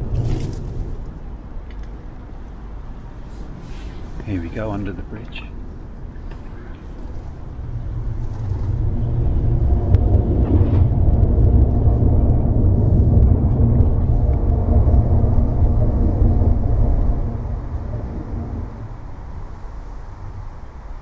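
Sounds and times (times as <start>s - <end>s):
heavy vehicle rumbling on bridge: 5.5s - 21.0s.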